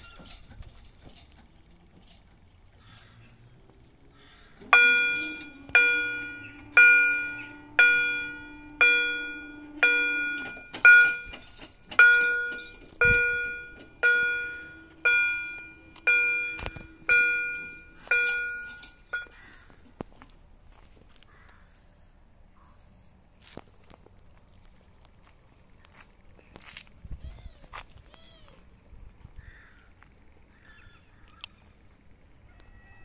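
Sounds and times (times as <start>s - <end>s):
level crossing warning bell: 4.6s - 19.5s.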